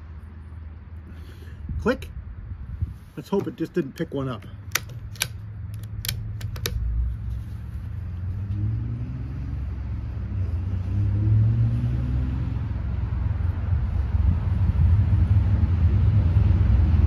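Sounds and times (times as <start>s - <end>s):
rifle bolt clicks: 4.6s - 6.8s
low rumble: 6.7s - 17.0s.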